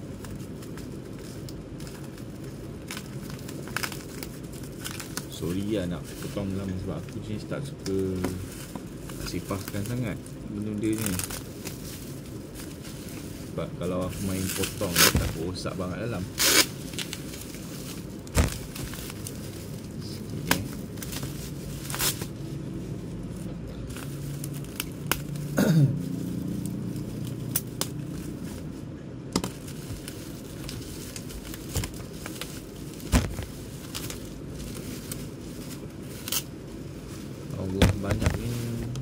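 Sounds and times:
bubble wrap crinkling and tearing: 0:00.0 - 0:39.0
sharp crackles and snaps: 0:00.1 - 0:12.7, 0:26.5 - 0:28.1.

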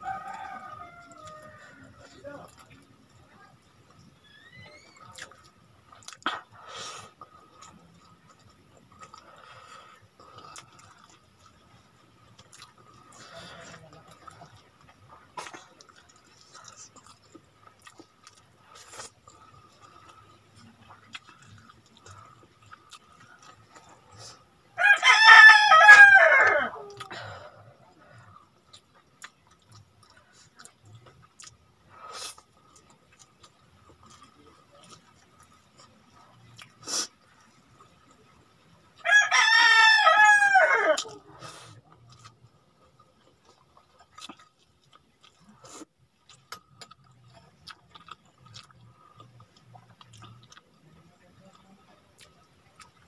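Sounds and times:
rooster crowing: 0:00.0 - 0:02.2, 0:24.8 - 0:27.0, 0:39.0 - 0:41.2
clicks and squelches of eating: 0:00.0 - 0:25.1, 0:26.8 - 0:39.1, 0:40.8 - 0:53.0.

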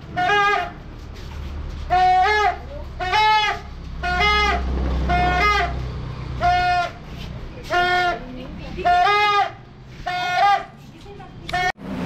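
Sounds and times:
toy trumpet honking: 0:00.1 - 0:00.8, 0:01.9 - 0:05.8, 0:06.4 - 0:07.0, 0:08.9 - 0:10.7.

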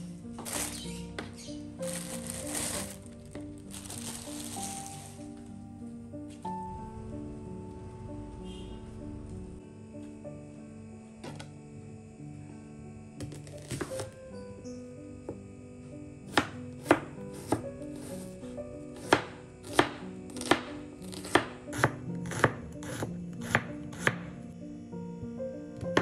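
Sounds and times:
knife slicing onion on cutting board: 0:13.2 - 0:14.2, 0:16.3 - 0:18.3, 0:19.0 - 0:24.3.

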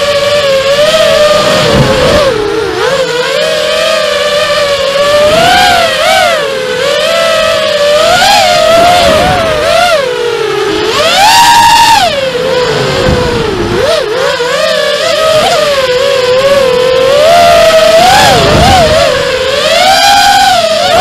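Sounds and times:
quadcopter motors whining: 0:00.0 - 0:21.0.

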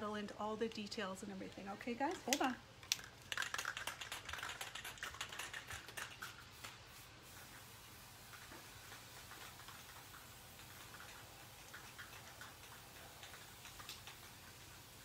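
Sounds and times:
faint background hiss: 0:00.0 - 0:15.0
soft irregular ticks: 0:08.9 - 0:14.8.

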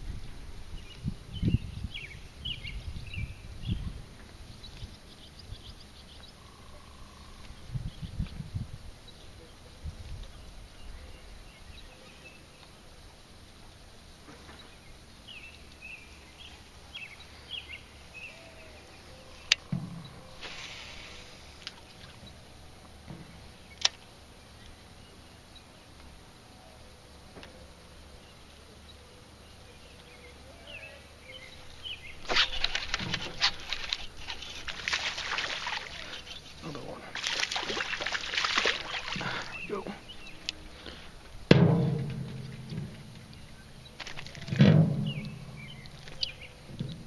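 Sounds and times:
faint chirping: 0:00.7 - 0:41.4, 0:42.3 - 0:47.0
fish splashing at the surface: 0:20.4 - 0:22.2, 0:32.2 - 0:39.9.

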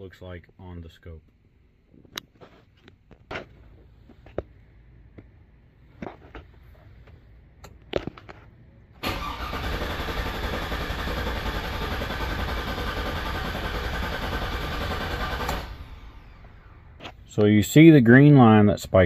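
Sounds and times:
starter cranking engine: 0:09.0 - 0:16.9.

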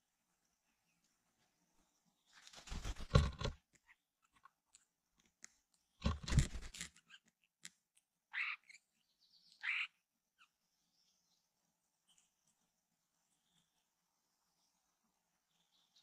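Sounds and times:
nestling harsh begging calls: 0:08.3 - 0:08.8, 0:09.6 - 0:10.0.

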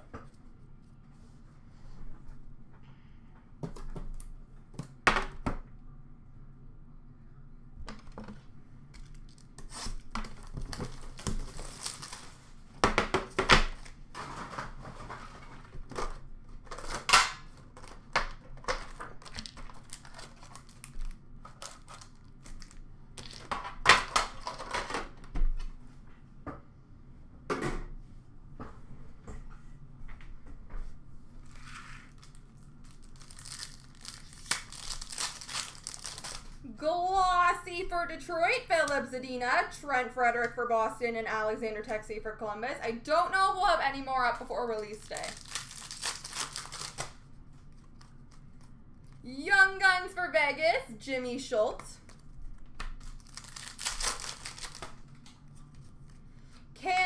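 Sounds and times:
wrappers tearing and crinkling: 0:09.0 - 0:12.6, 0:18.7 - 0:23.5, 0:32.0 - 0:36.6, 0:45.0 - 0:49.2, 0:53.0 - 0:55.2.

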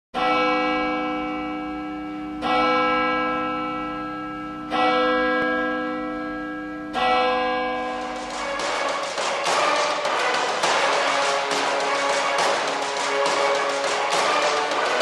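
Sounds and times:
deep bell-like tone: 0:00.3 - 0:08.7.

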